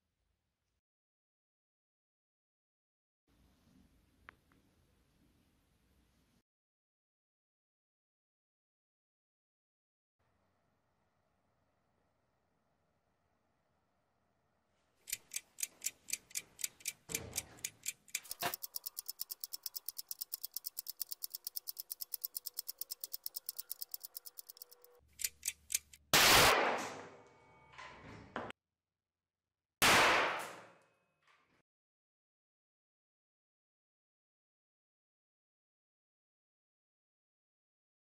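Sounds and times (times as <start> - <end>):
clock-style ticking: 15.1 - 26.0.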